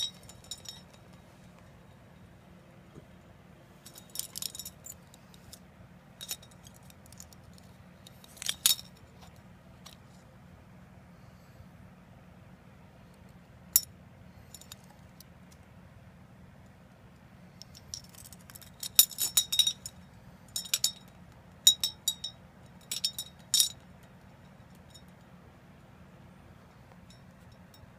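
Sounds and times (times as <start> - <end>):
metal lure blades clinking: 0.0 - 1.3, 3.9 - 5.6, 6.2 - 7.4, 8.2 - 9.1, 17.6 - 25.2.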